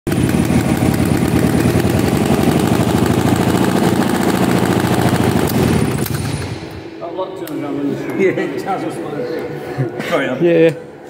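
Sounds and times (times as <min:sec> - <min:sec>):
motorcycle engine running: 0:00.1 - 0:06.8.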